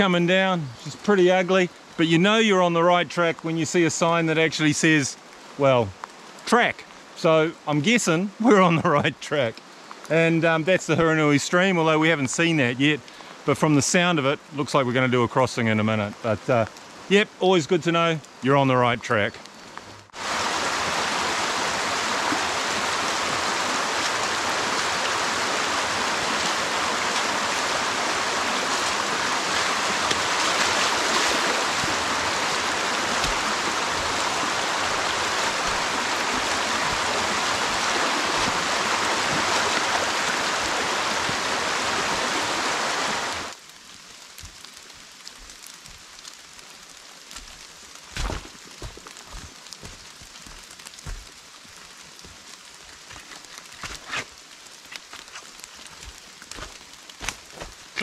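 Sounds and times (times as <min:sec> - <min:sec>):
stream rushing water: 0:00.0 - 0:13.0, 0:20.0 - 0:43.6
rain falling: 0:00.0 - 0:58.0.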